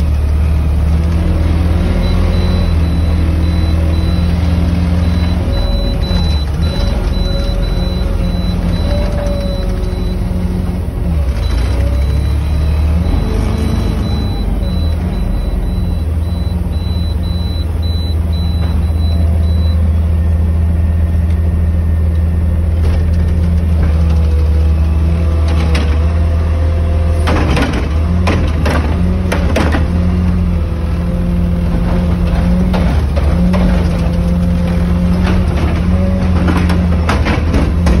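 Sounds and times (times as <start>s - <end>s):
truck engine droning: 0.0s - 38.0s
clunks and rattles: 2.3s - 19.8s, 25.4s - 26.2s, 27.2s - 30.4s, 31.6s - 38.0s.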